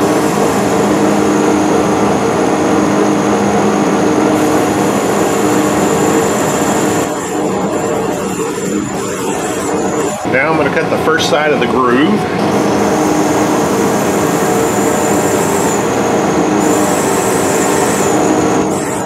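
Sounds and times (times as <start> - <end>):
high-pitched lathe whine: 0.0 - 19.0
metal lathe humming: 0.0 - 19.0
cutting tool cutting metal: 4.3 - 10.3, 12.5 - 19.0.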